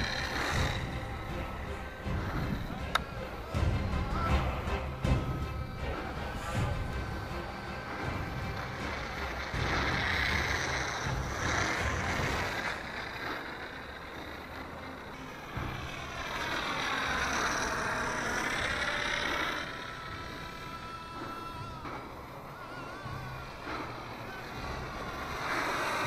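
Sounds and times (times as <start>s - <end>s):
wind rumble on microphone: 0.0s - 4.4s
model plane motor whining: 0.0s - 26.0s.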